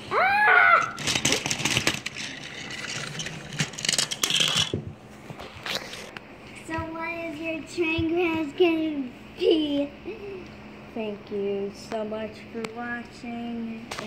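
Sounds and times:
child squealing: 0:00.0 - 0:01.0
plastic toy train rattling: 0:00.8 - 0:04.8.

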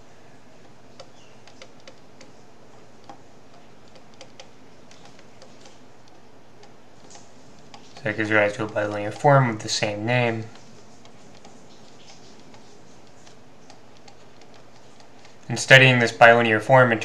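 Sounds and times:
stylus tapping on tablet: 0:00.9 - 0:02.4, 0:03.0 - 0:09.2.

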